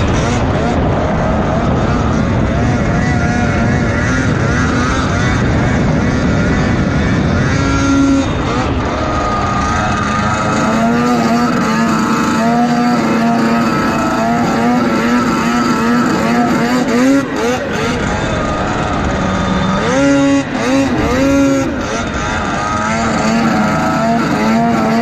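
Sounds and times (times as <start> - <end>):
snowmobile engine at high revs: 0.0 - 25.0.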